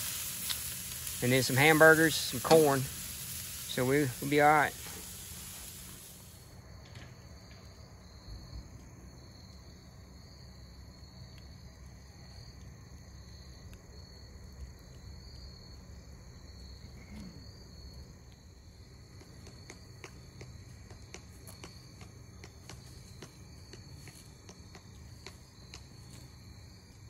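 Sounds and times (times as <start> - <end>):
campfire crackling: 0.0 - 6.6, 17.7 - 27.0
crickets chirping: 0.0 - 27.0.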